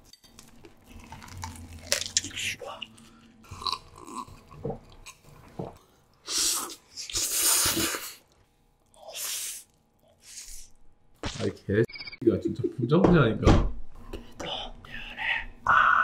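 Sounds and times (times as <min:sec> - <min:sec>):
quiet chewing: 0:00.1 - 0:05.9.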